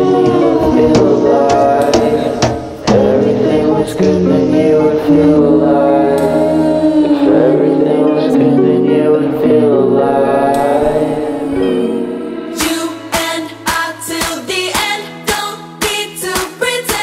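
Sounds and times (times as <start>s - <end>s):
drum hits: 0.0s - 4.3s
song with sung notes: 0.0s - 17.0s.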